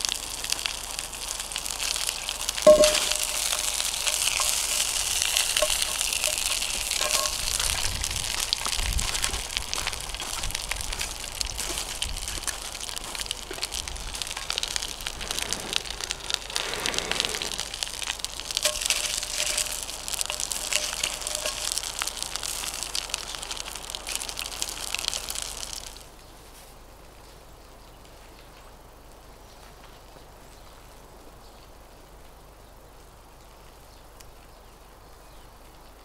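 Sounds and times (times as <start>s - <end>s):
fire crackling: 0.0s - 26.2s
sausages sizzling and spitting: 0.0s - 26.2s
quiet woodland background: 0.0s - 36.0s.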